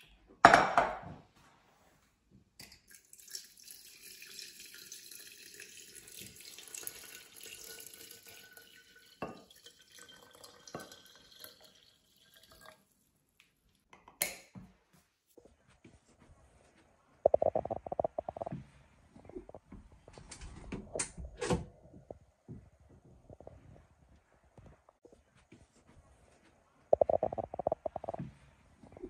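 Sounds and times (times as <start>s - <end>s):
water pouring into glass jar: 2.6s - 13.0s.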